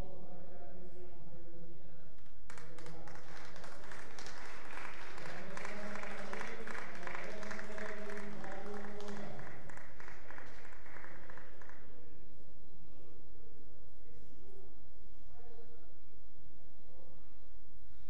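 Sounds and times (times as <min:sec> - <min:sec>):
audience applause: 0:02.5 - 0:11.8.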